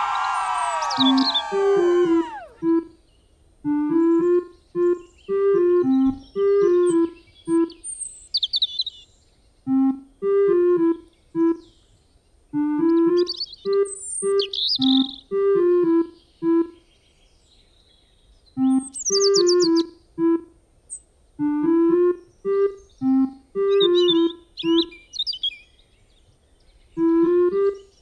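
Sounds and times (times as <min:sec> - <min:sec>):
keyboard tune: 0:00.0 - 0:02.9, 0:14.8 - 0:16.8, 0:21.4 - 0:24.9, 0:27.0 - 0:27.8.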